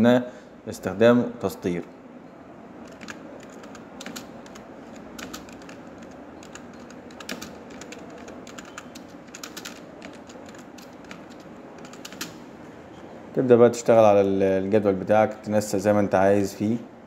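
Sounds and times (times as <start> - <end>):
keyboard keystroke clicks: 2.8 - 12.4.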